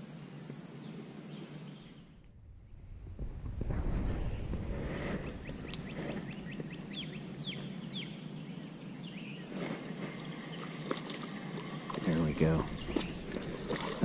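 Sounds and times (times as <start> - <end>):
low rumble: 2.1 - 7.6, 12.3 - 14.0
bird calling: 12.0 - 14.0.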